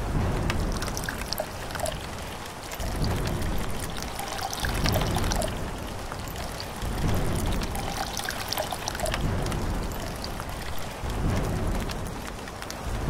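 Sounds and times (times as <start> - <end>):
rain drops ticking: 0.0 - 13.0
water splashing on sand and rocks: 0.0 - 13.0.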